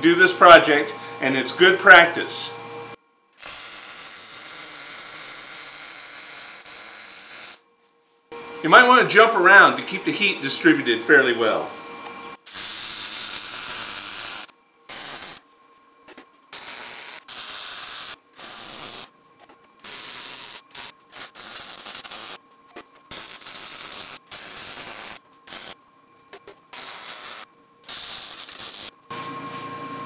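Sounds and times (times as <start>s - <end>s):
welding arc sizzling: 3.4s - 7.7s, 12.4s - 15.4s, 16.1s - 25.8s, 26.4s - 29.0s.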